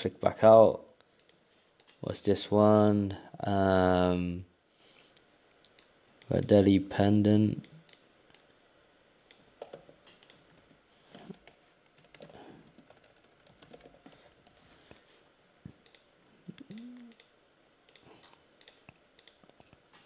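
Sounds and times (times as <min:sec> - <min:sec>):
typing on a keyboard: 0:09.3 - 0:14.6.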